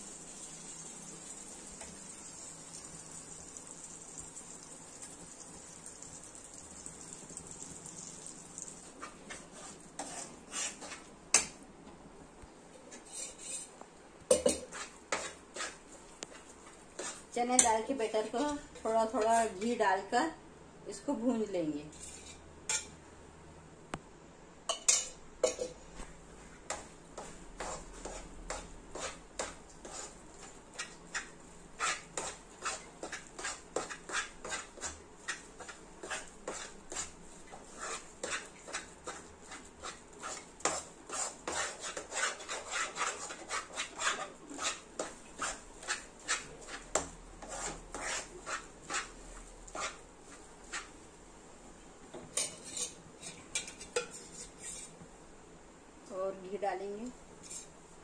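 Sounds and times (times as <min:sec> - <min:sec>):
spoon scraping a frying pan: 0:07.8 - 0:11.6, 0:12.9 - 0:19.8, 0:21.9 - 0:22.9, 0:24.7 - 0:25.8, 0:26.7 - 0:51.0, 0:52.2 - 0:55.0, 0:57.4 - 0:57.8.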